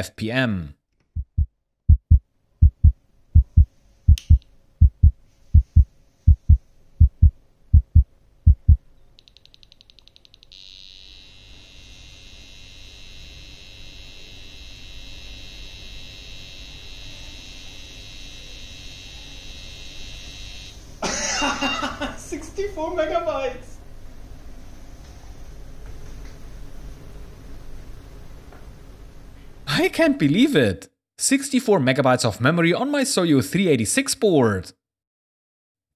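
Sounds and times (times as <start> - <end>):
low heartbeat-like thumps: 1.2 - 8.8
low hum: 1.2 - 8.8
sharp click: 4.1 - 4.5
high-pitched computer whine: 9.3 - 20.8.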